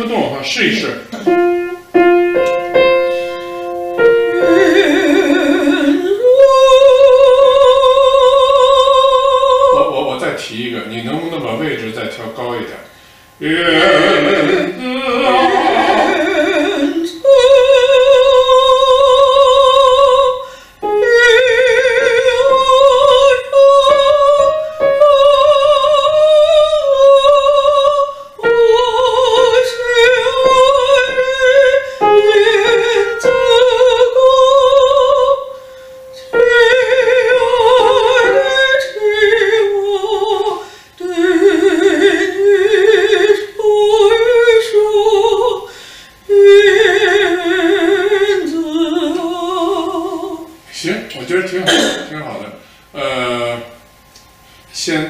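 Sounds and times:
piano accompaniment: 1.1s - 7.4s, 20.8s - 40.6s
woman singing with vibrato: 1.2s - 9.8s, 13.4s - 50.6s.

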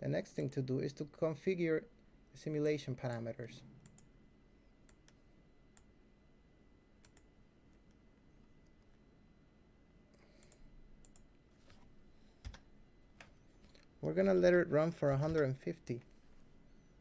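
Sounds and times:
keyboard and mouse clicks: 7.0s - 8.0s, 10.1s - 11.3s.

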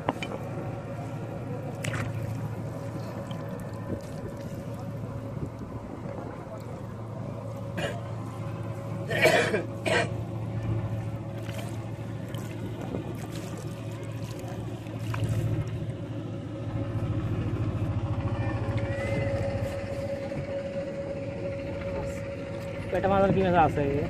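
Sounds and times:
water splashes: 0.0s - 17.9s
fishing net hauled from water: 0.0s - 23.3s
boat engine droning: 0.0s - 24.0s.

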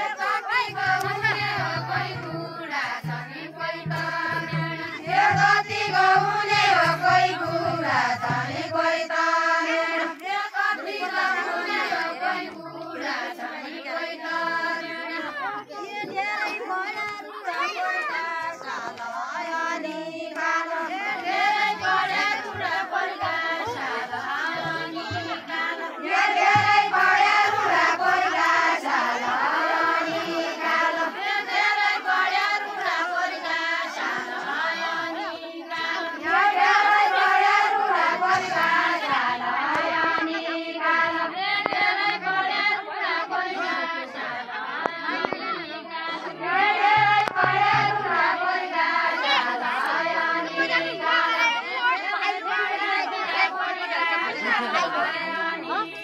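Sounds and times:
women singing folk song: 0.0s - 56.0s.

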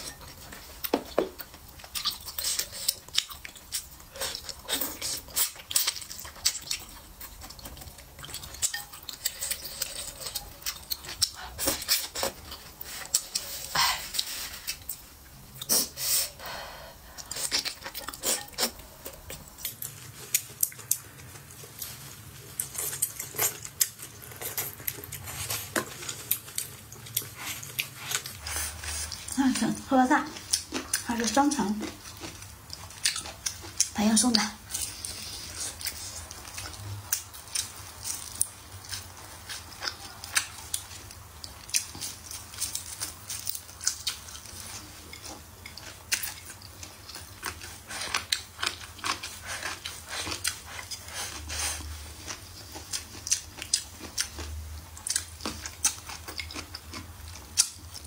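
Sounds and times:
slurping and chewing noodles: 0.0s - 58.0s.

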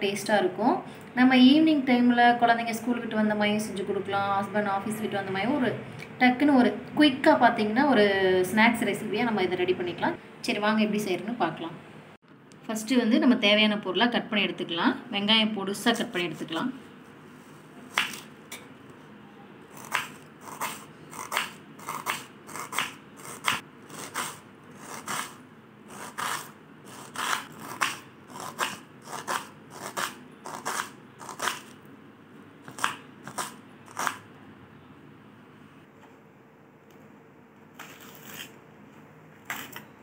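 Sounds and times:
knife chopping onion on wooden board: 19.8s - 31.7s.

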